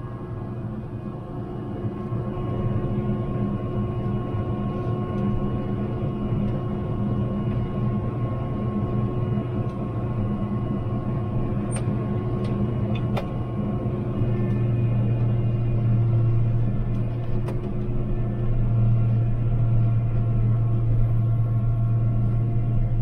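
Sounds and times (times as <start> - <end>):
vehicle engine running: 2.0 - 23.0.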